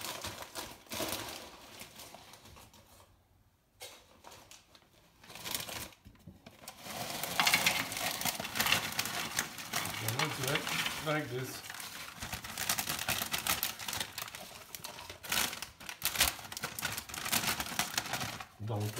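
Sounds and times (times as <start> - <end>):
foil crisp packet crinkling: 0.0 - 2.8, 6.6 - 18.9.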